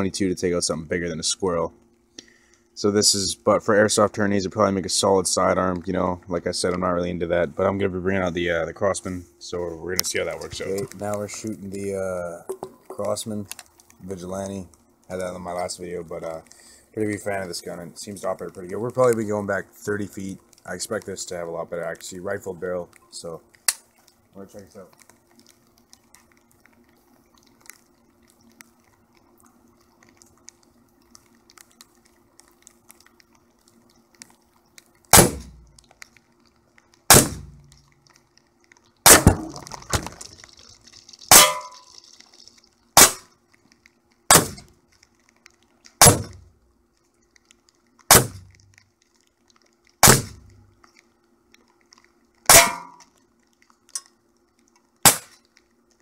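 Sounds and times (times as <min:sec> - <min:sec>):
cans rattling: 0:12.4 - 0:13.2, 0:39.2 - 0:42.6
air pistol shots: 0:35.1 - 0:35.6, 0:37.1 - 0:37.6, 0:39.1 - 0:39.7, 0:43.0 - 0:43.3, 0:44.3 - 0:44.7, 0:46.0 - 0:46.4, 0:48.1 - 0:48.5, 0:50.0 - 0:50.5
pellets striking drink cans: 0:39.1 - 0:42.1.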